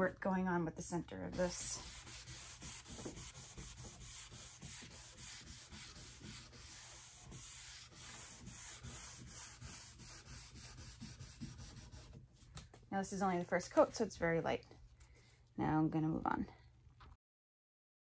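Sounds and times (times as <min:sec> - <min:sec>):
cloth rag rubbing on wood: 0:01.3 - 0:12.1.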